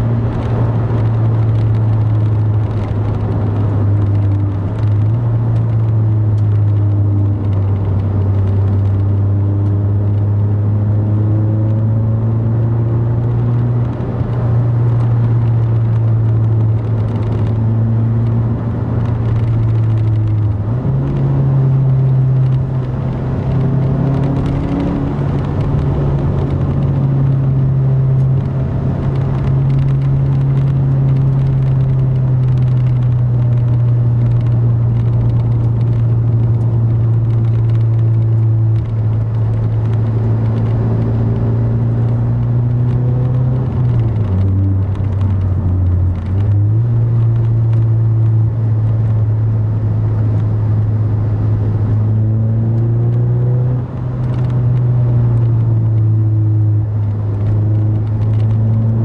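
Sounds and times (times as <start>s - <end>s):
car engine droning: 0.0s - 59.0s
tyre and road noise: 0.0s - 59.0s.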